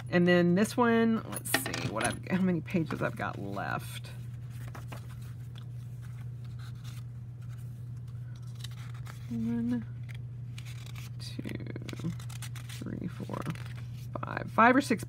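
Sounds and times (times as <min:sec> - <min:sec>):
low electrical hum: 0:00.0 - 0:15.0
notebook pages rustling: 0:02.8 - 0:11.1, 0:11.8 - 0:14.2.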